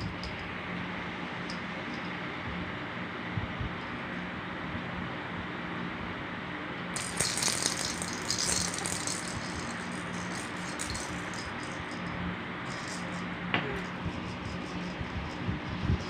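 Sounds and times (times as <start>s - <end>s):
plastic toy rattle shaking: 7.0s - 16.0s.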